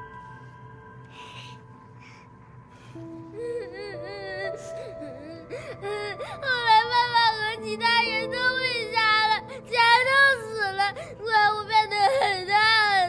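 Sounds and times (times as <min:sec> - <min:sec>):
soft film score: 0:00.0 - 0:13.0
boy crying: 0:03.3 - 0:13.0.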